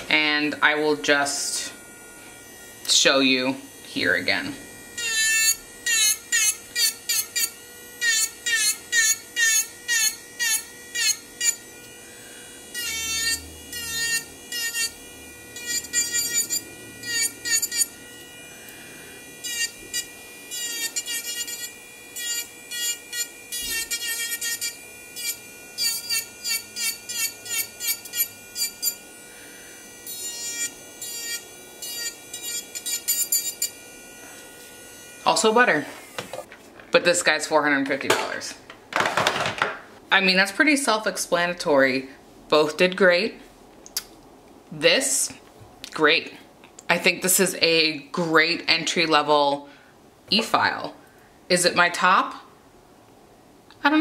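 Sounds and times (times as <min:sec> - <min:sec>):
electric nail drill whining: 0:00.7 - 0:36.5.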